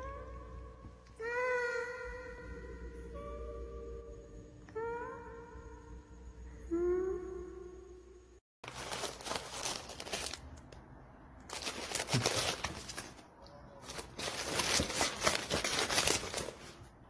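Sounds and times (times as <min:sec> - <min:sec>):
packets rustling and crinkling: 0:08.6 - 0:10.8, 0:11.5 - 0:16.9.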